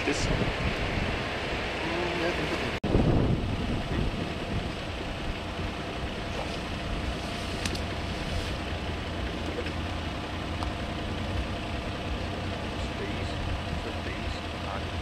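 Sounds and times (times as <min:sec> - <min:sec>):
wind rumbling on microphone: 0:00.0 - 0:08.8.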